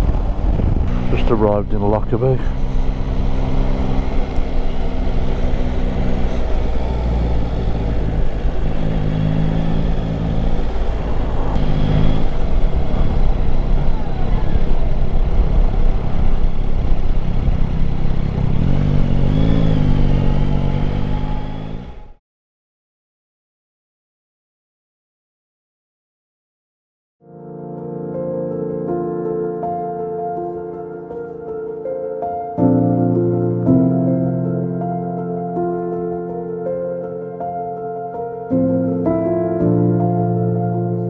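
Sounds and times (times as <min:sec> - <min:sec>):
wind noise on microphone: 0:00.0 - 0:01.3, 0:06.4 - 0:19.4
motorcycle engine running: 0:00.0 - 0:22.2.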